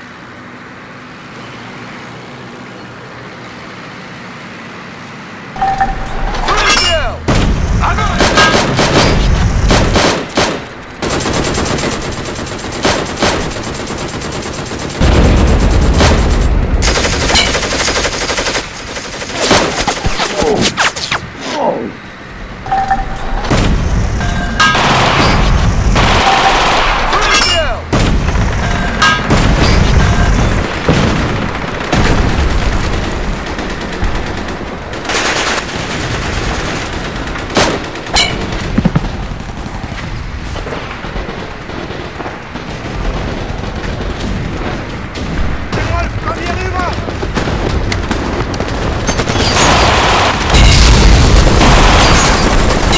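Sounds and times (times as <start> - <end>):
rifle and machine-gun fire: 7.2 - 21.1, 24.6 - 27.2, 27.8 - 39.9, 40.6 - 52.9
heavy explosions: 7.2 - 21.4, 23.3 - 27.1, 27.8 - 52.9.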